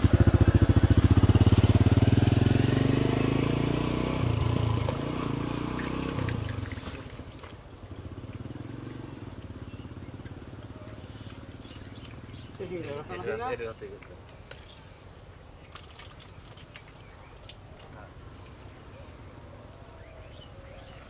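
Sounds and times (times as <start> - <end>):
engine throbbing: 0.0 - 6.9.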